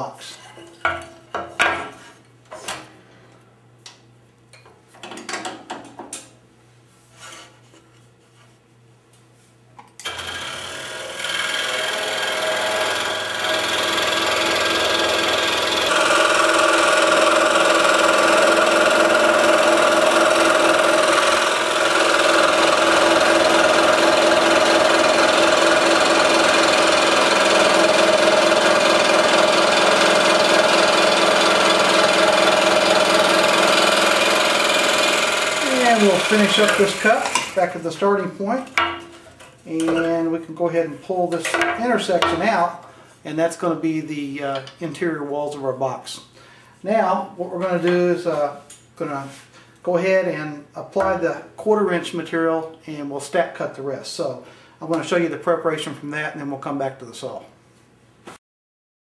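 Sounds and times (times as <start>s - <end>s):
scroll saw cutting wood: 10.0s - 38.2s.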